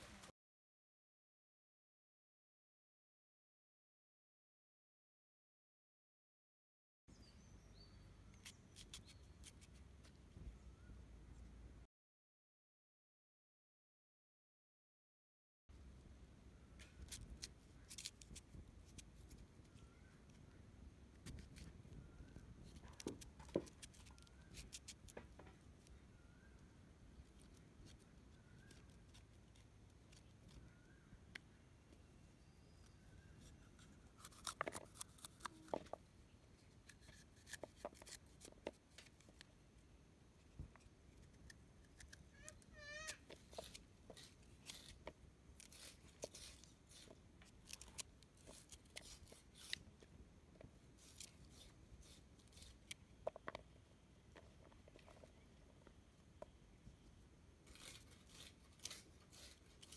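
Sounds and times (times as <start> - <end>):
knife cutting mango: 8.4 - 9.8, 22.3 - 25.2, 27.3 - 31.0, 32.4 - 36.0, 36.8 - 39.5, 41.2 - 50.0, 51.0 - 53.0, 57.7 - 59.9.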